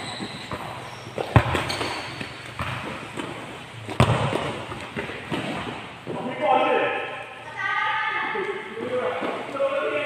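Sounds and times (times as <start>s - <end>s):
ball kicked with echoing thud: 0.5s - 1.7s, 2.6s - 2.9s, 3.9s - 5.6s.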